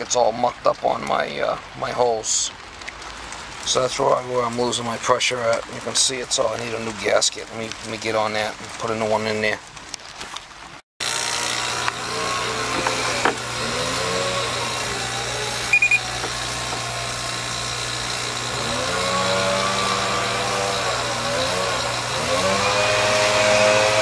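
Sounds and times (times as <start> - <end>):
vacuum pump running: 11.0 - 24.0
high double beep: 15.7 - 16.1.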